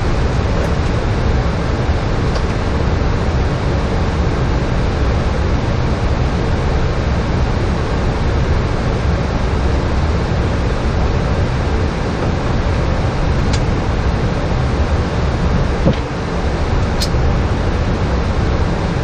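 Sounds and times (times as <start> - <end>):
aircraft cockpit air and engine rush: 0.0 - 19.0.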